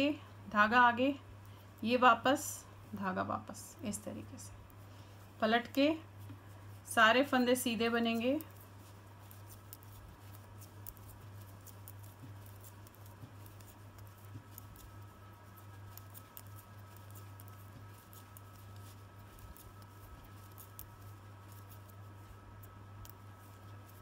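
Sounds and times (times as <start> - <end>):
low electrical hum: 0.0 - 24.0
knitting needles clicking: 8.0 - 24.0.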